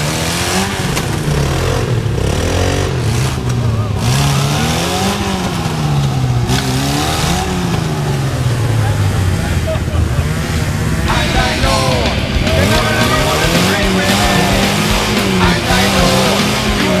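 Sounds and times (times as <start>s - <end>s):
off-road vehicle engine revving: 0.0s - 17.0s
steady engine note: 0.0s - 17.0s.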